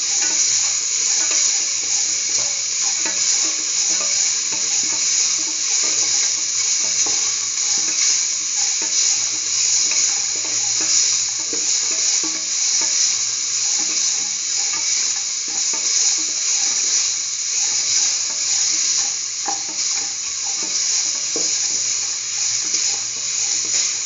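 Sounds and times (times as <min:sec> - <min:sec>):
vegetables sizzling in oil: 0:00.0 - 0:24.0.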